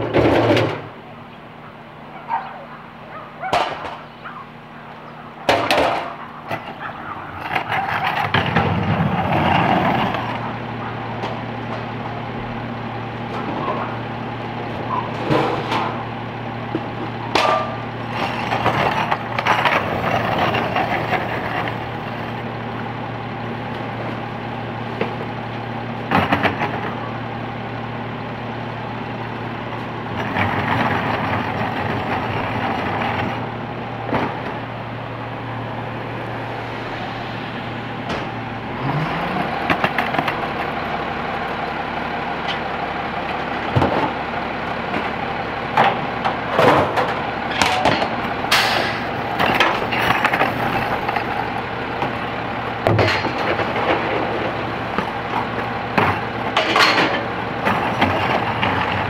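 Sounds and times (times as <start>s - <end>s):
trash cans banging against truck: 0.0s - 1.0s, 3.4s - 4.5s, 5.4s - 10.4s, 14.8s - 16.1s, 16.7s - 21.6s, 44.9s - 59.0s
garbage truck diesel engine: 0.0s - 59.0s.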